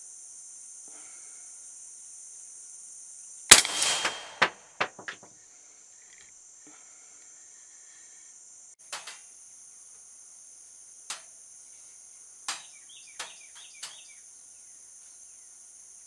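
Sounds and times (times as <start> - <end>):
insects buzzing: 0.0 - 16.0
quick sharp knocks: 3.5 - 5.3
rifle shot: 3.5 - 5.3.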